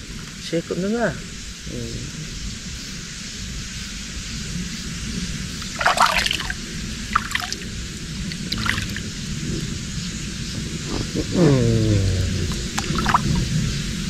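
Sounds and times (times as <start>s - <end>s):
short splashes: 5.6s - 9.1s, 12.5s - 13.4s
water trickling and sloshing: 5.6s - 9.4s, 12.1s - 14.0s.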